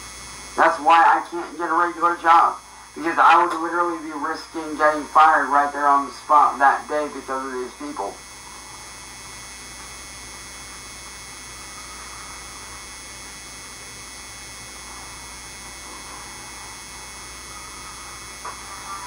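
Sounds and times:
electrical hum: 0:00.0 - 0:19.0
thin high-pitched whines: 0:00.6 - 0:19.0
hiss: 0:10.7 - 0:19.0.

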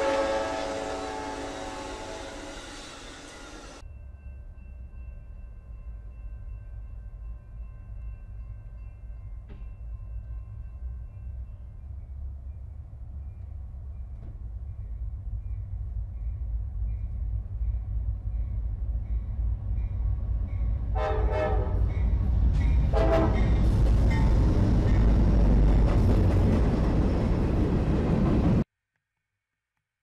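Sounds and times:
train horn blasts: 0:00.0 - 0:03.8, 0:20.9 - 0:21.9, 0:22.9 - 0:23.6
rail cars rushing and clattering: 0:00.0 - 0:28.7
locomotive rumble: 0:06.1 - 0:28.6.

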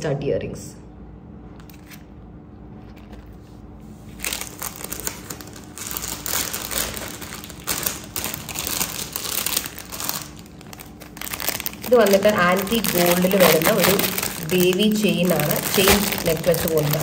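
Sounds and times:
plastic pouch crinkling: 0:04.0 - 0:17.0.

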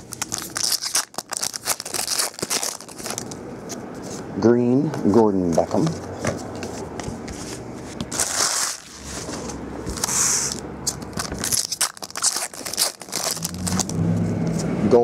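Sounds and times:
foil pack tearing and crinkling: 0:00.0 - 0:03.4, 0:08.1 - 0:09.0, 0:10.0 - 0:14.0
cards being shuffled: 0:06.6 - 0:14.7.

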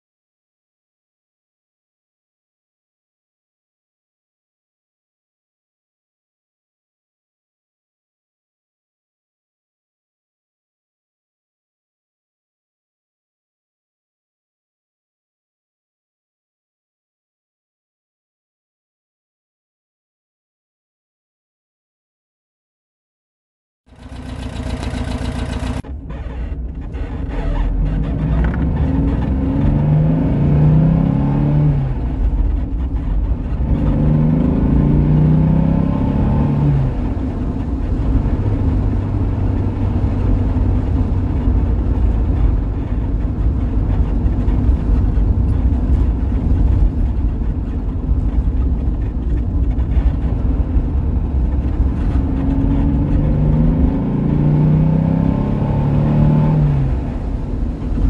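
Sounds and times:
car engine accelerating from inside cabin: 0:23.9 - 0:58.0.

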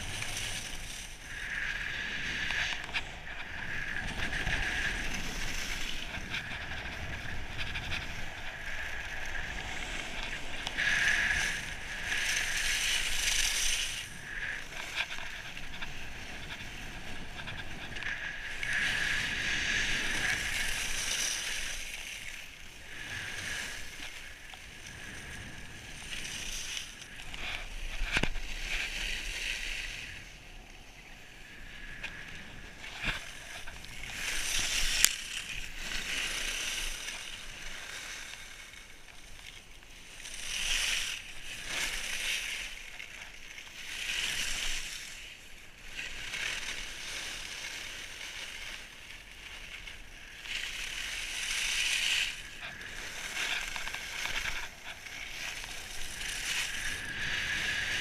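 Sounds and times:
wind on microphone: 0:00.0 - 0:38.6, 0:50.4 - 0:58.0
skis hissing over snow: 0:00.0 - 0:39.4, 0:40.0 - 0:58.0.

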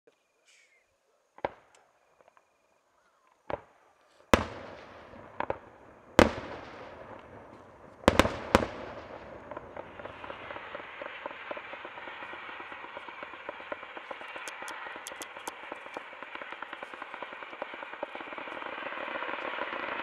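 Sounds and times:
fireworks bangs: 0:03.4 - 0:20.0
fireworks crackling: 0:04.3 - 0:20.0.

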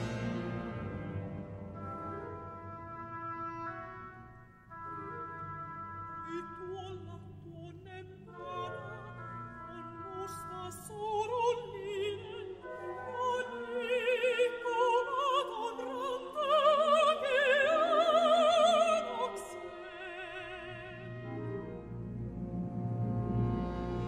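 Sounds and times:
symphony orchestra: 0:00.0 - 0:24.0
mezzo-soprano singing with vibrato: 0:05.7 - 0:21.6.

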